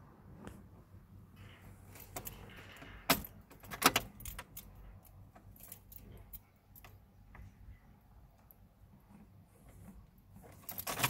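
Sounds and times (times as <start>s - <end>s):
ignition key clicks: 3.1s - 4.7s
key ring jangling: 3.1s - 7.0s.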